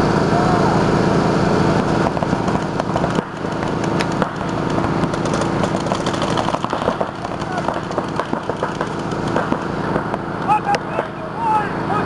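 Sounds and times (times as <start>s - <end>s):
steady engine-like hum: 0.0s - 12.0s
paintball markers firing pops: 2.0s - 11.1s.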